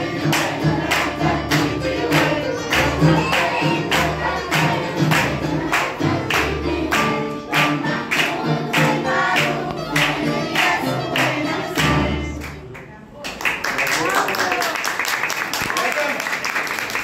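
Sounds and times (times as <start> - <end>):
backing music with steady beat: 0.0 - 12.4
children singing: 0.0 - 12.4.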